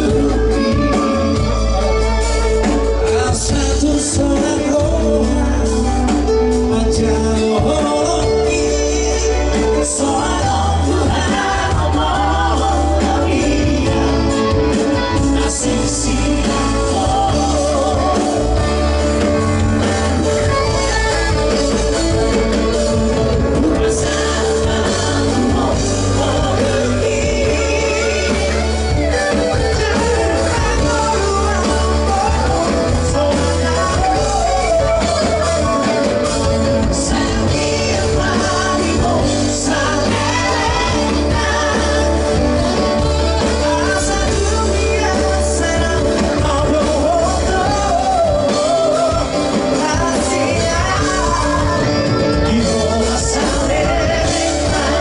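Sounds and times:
amplified band music: 0.0 - 55.0
men singing into microphones: 0.0 - 55.0.

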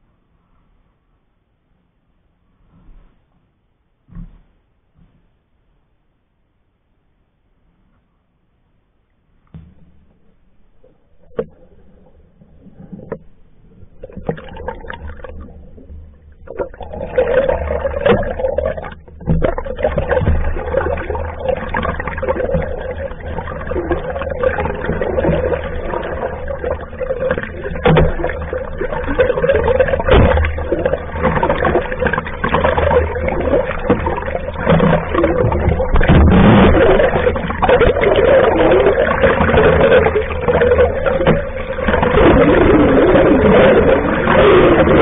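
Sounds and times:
muffled underwater water rushing: 9.5 - 45.0.

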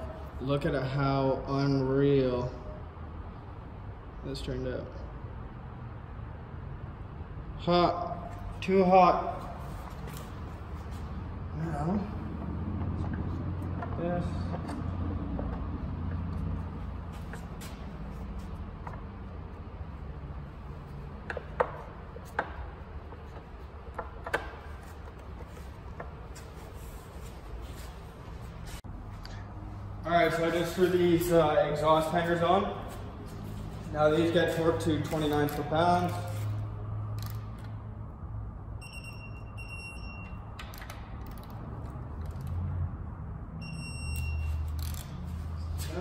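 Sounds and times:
engine parts clicking and knocking: 12.3 - 18.1, 20.5 - 26.6
torque wrench beeping: 38.8 - 40.8, 43.6 - 45.2.

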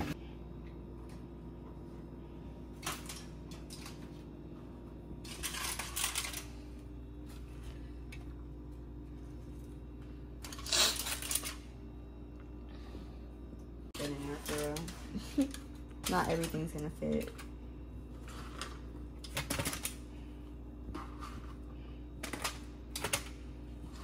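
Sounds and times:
steady low hum: 0.0 - 24.0
kitchen rustling and clattering: 2.6 - 11.8, 14.0 - 24.0.

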